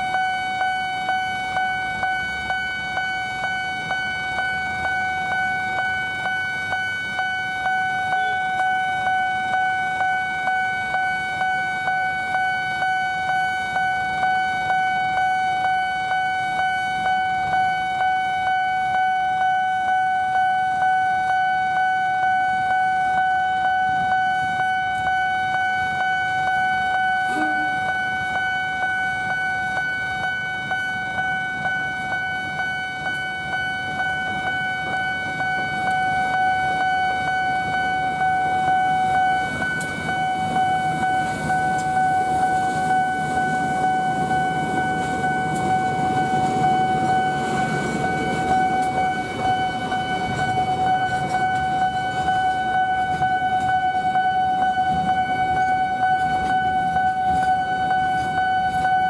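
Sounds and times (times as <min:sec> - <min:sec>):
level crossing alarm pulsing: 0:00.0 - 0:59.0
train arriving: 0:00.0 - 0:59.0.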